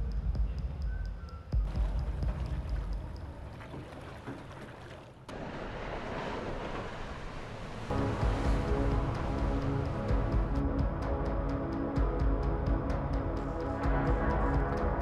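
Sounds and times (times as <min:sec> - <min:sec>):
boat engine rumble: 0:00.0 - 0:15.0
boat hull rushing water: 0:01.7 - 0:15.0.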